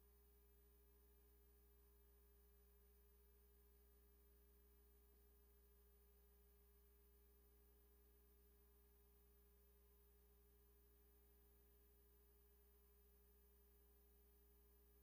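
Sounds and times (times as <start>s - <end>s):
faint electrical hum: 0.0s - 15.0s.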